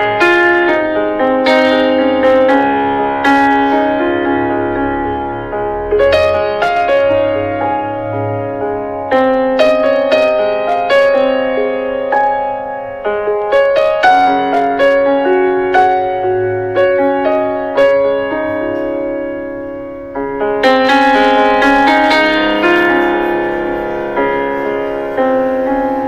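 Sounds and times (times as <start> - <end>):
slow piano melody: 0.0 - 26.0.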